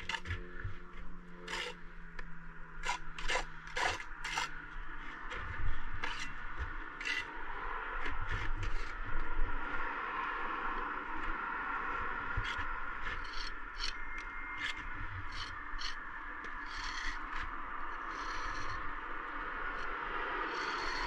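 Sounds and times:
trowel scraping mortar on brick: 0.0s - 0.6s, 1.4s - 1.8s, 2.8s - 7.3s, 8.0s - 9.0s, 12.4s - 18.9s, 20.5s - 21.0s.

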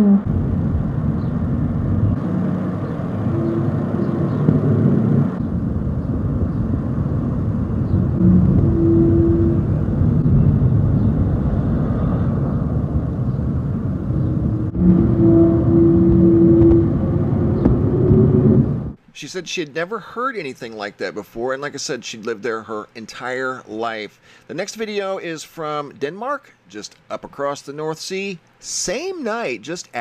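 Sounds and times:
long horn-like tone: 0.0s - 0.4s, 2.2s - 5.4s, 8.1s - 10.5s, 14.2s - 19.0s
low rumbling drone: 0.0s - 19.0s
wind buffeting microphone: 0.0s - 19.0s.

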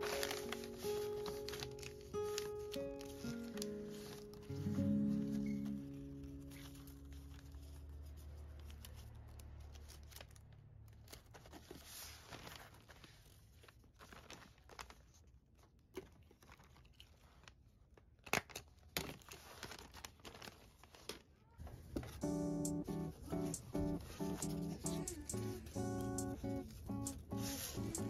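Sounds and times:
paper bag crackling: 0.0s - 17.6s, 19.1s - 22.3s
paper rustling and crinkling: 0.0s - 22.2s.

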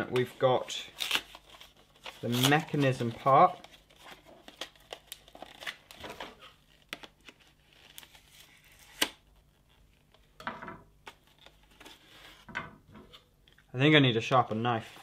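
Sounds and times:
paper packaging rustling: 0.1s - 9.2s.

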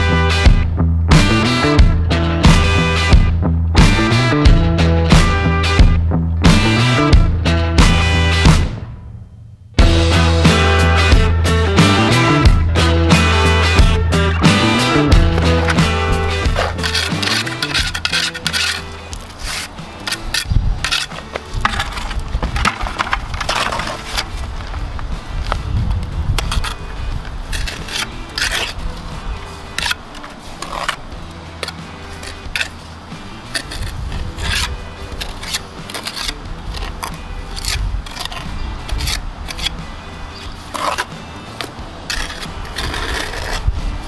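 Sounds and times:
metal tool scraping wet mortar: 13.8s - 24.4s, 26.4s - 29.1s, 29.7s - 43.7s.

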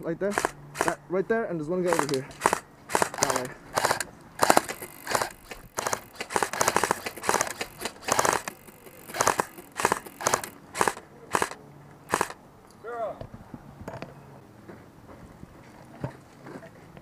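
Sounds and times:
airsoft guns firing bursts: 0.3s - 1.0s, 1.9s - 12.4s.

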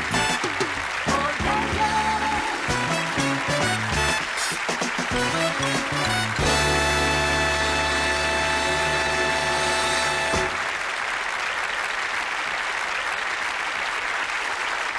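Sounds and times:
television theme tune: 0.0s - 10.7s
studio audience applause: 0.0s - 14.9s.

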